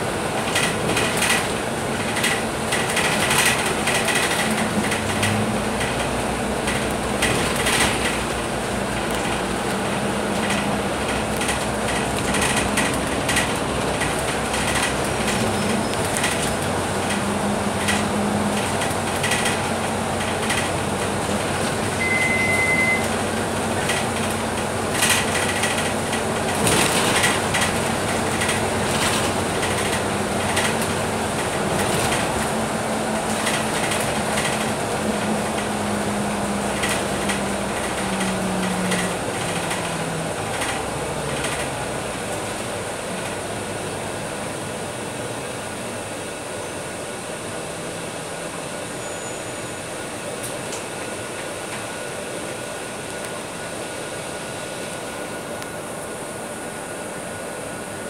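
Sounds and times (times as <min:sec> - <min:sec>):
bus diesel engine drone: 0:00.0 - 0:58.0
short high beep: 0:22.0 - 0:23.1.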